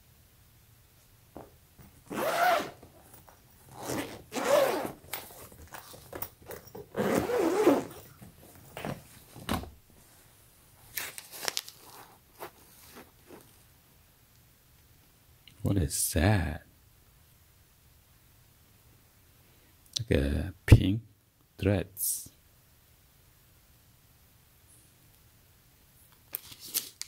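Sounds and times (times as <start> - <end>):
zipper unzipping: 2.1 - 8.2
plastic bag rustles and clicks: 4.8 - 7.0.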